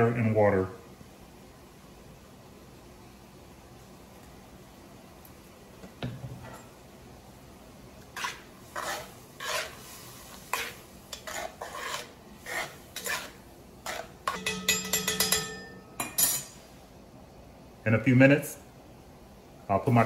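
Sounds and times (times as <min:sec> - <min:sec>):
metal spoon scraping pot: 0:08.2 - 0:09.8, 0:10.5 - 0:16.6
ringing metal clinks: 0:14.4 - 0:16.5.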